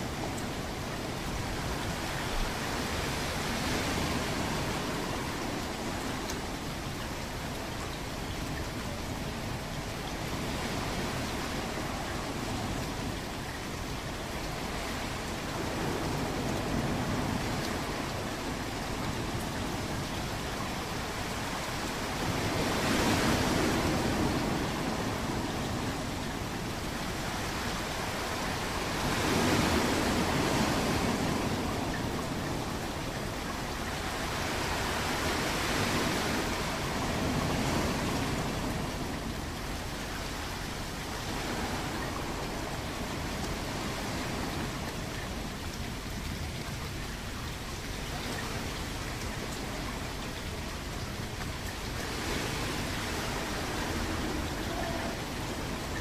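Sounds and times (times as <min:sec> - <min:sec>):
ocean waves washing in: 0:00.0 - 0:56.0
surf hiss: 0:00.0 - 0:56.0.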